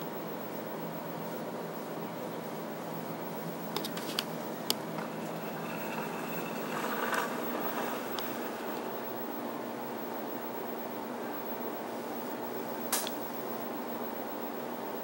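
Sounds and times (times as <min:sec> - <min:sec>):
faint hum: 0:00.0 - 0:15.0
steady hiss: 0:01.2 - 0:09.7.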